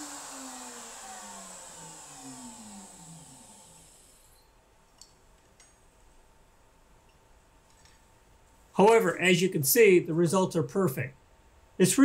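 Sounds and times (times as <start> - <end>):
router motor spinning down: 0.0 - 4.5.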